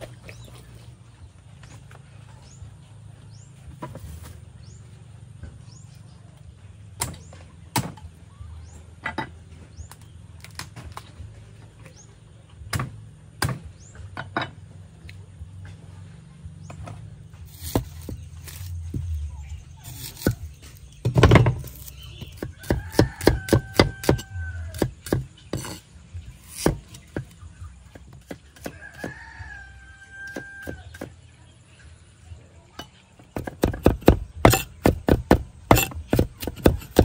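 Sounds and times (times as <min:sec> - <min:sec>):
knife chopping on wooden block: 0:17.5 - 0:19.2, 0:19.8 - 0:25.8, 0:26.4 - 0:27.4, 0:33.3 - 0:37.0.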